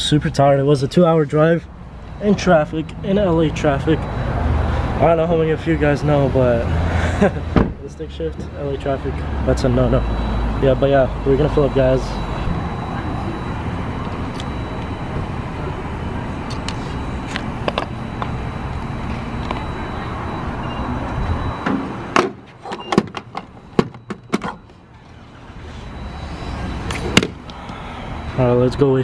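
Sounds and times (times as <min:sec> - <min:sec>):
nozzle clicks and clunks: 0:21.6 - 0:24.8
fuel pump humming: 0:26.0 - 0:28.4.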